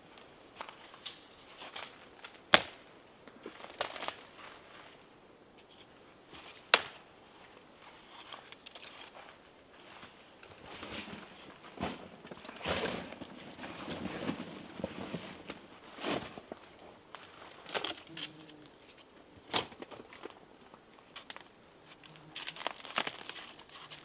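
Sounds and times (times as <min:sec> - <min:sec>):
camping gear rustling: 0:00.0 - 0:24.0.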